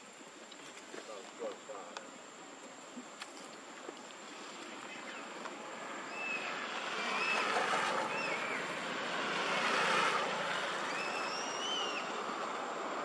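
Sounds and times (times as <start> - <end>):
road vehicle approaching: 4.3 - 13.0.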